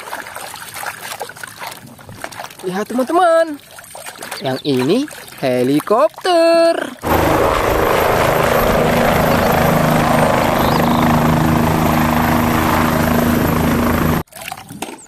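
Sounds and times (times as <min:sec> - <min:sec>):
helicopter hovering: 0:07.0 - 0:14.2.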